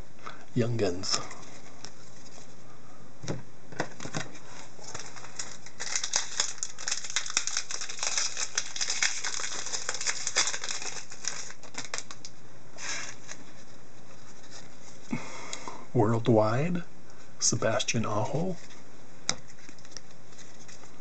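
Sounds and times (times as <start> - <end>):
cards rustling: 3.9 - 15.0, 18.3 - 21.0
foil wrapper crinkling: 4.7 - 13.6, 19.4 - 21.0.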